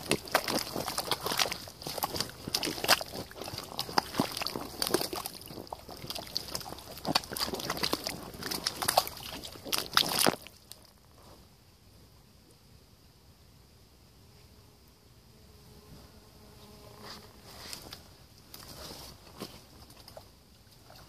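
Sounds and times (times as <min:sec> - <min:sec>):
waders squelching in mud: 0:00.0 - 0:10.9.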